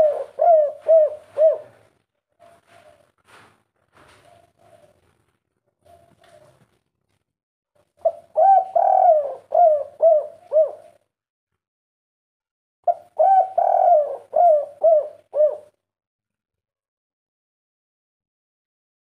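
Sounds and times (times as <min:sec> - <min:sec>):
dove cooing: 0:00.0 - 0:05.2, 0:05.8 - 0:06.7, 0:08.0 - 0:11.0, 0:12.9 - 0:15.8.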